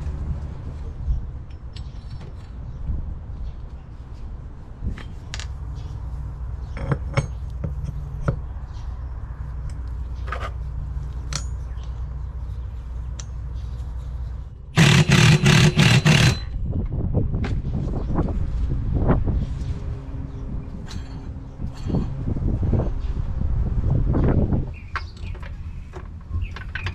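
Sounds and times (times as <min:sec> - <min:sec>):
impact wrench hammering: 0:14.8 - 0:16.6
metal parts clinking and scraping: 0:14.8 - 0:16.6, 0:20.8 - 0:22.2.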